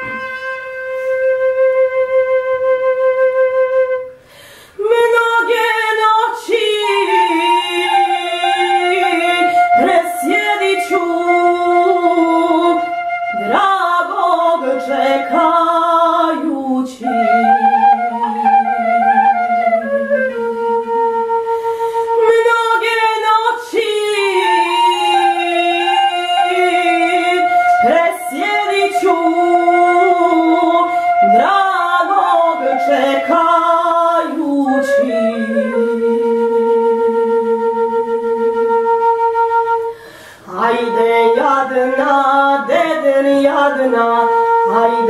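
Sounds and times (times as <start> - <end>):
flute: 0.0 - 45.0
woman singing: 4.8 - 19.2, 22.2 - 37.4, 40.4 - 45.0.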